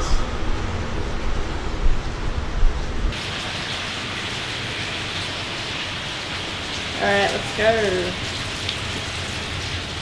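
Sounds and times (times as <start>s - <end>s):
water splashing in a storm drain: 3.2s - 10.0s.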